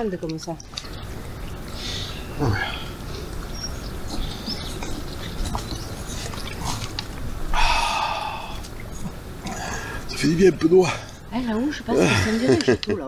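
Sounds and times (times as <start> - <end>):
dogs lapping water: 0.3 - 7.4
loud breathy sound: 7.5 - 8.6.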